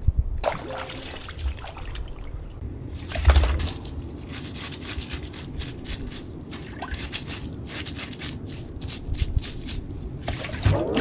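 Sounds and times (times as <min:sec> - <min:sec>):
bristle brush scraping fish: 0:03.0 - 0:10.3.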